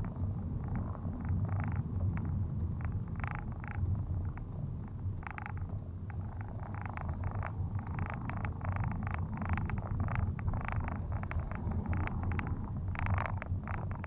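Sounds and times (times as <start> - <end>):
car engine and road rumble: 0.0 - 14.0
rattly noise bursts: 5.2 - 14.0.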